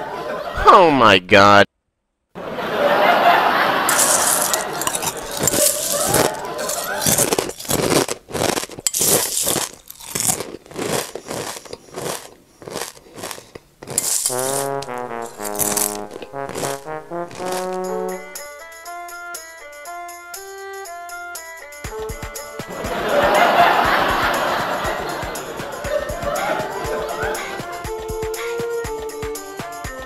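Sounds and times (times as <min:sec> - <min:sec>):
steel plates clinking: 0:03.9 - 0:08.1, 0:08.8 - 0:10.4, 0:14.0 - 0:16.3
onion slices crunching: 0:03.9 - 0:18.4
comic brass tune: 0:14.0 - 0:19.1, 0:22.6 - 0:29.0.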